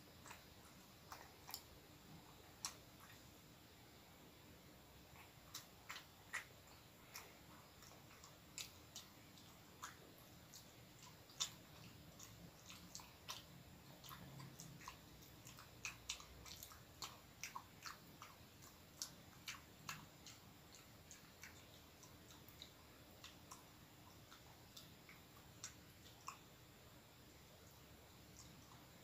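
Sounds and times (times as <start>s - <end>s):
person chewing bread: 0.1s - 3.4s, 4.9s - 29.0s.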